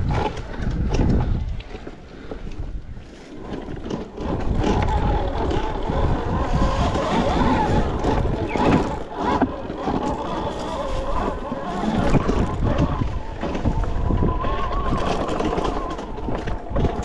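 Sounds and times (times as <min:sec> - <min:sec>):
wind and terrain rumble: 0:00.0 - 0:17.0
electric motor whine: 0:03.4 - 0:17.0.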